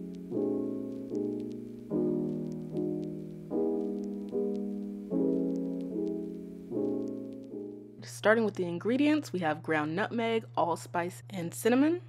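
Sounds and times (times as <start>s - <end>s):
piano chords: 0.0s - 8.0s.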